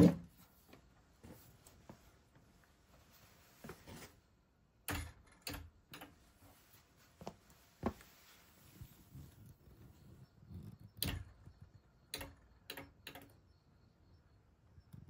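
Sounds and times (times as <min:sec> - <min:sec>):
faint clicks and knocks: 0:04.9 - 0:08.1, 0:09.3 - 0:13.5.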